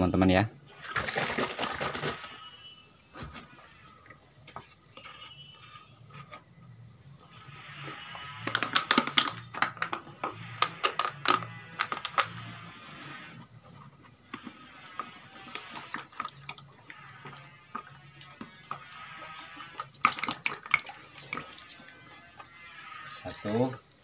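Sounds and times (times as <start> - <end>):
plastic clicks and knocks: 8.4 - 12.4.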